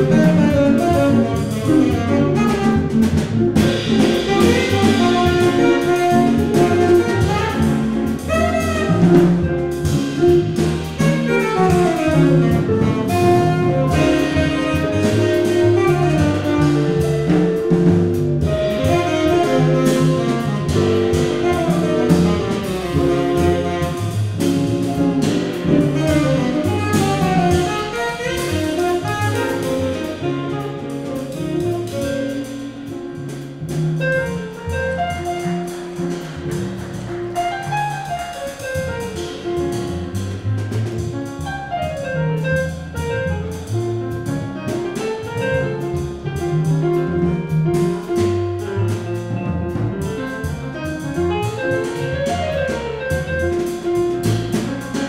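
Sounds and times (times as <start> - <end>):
saxophone: 0.0 - 9.6, 11.0 - 17.6, 18.5 - 32.9
drums: 0.0 - 55.0
grand piano: 0.0 - 55.0
upright bass: 0.0 - 55.0.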